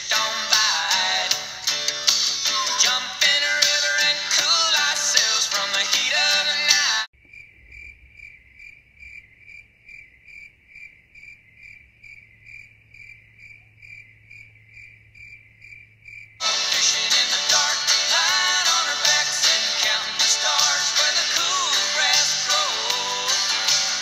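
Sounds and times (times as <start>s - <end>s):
song playing: 0.0s - 7.1s, 16.4s - 24.0s
crickets chirping: 7.2s - 16.4s.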